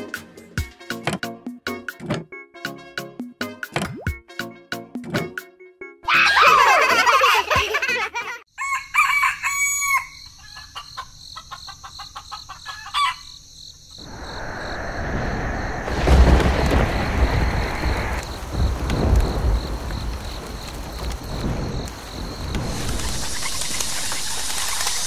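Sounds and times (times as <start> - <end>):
rooster crowing: 8.5 - 13.4
rooster clucking: 9.0 - 13.3
low rumble: 14.0 - 20.3
steady rushing noise: 14.0 - 25.0.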